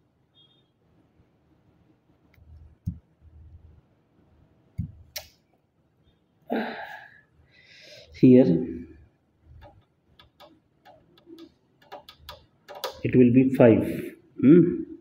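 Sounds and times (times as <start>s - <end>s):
short breath-like sound: 6.5s - 8.2s
soft knocks: 9.5s - 13.0s.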